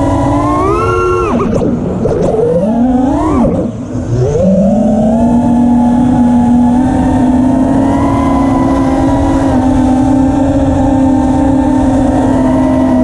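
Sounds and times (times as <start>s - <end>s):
quadcopter motors whining: 0.0s - 13.0s.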